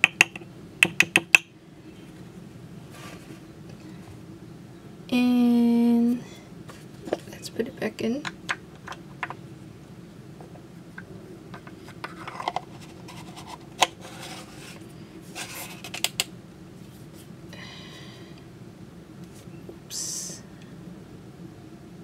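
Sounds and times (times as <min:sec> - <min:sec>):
canister rubbing and scraping: 0:11.5 - 0:16.1.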